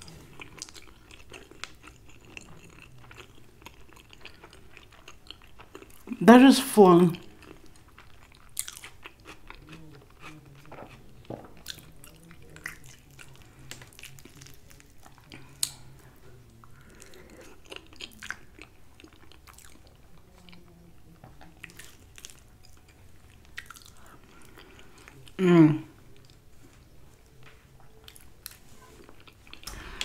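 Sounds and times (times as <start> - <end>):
person chewing food: 0.0 - 6.2, 7.2 - 25.4, 26.1 - 30.0.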